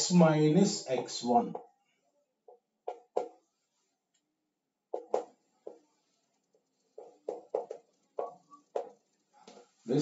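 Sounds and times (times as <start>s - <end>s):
chalk scratching on chalkboard: 5.0s - 9.9s.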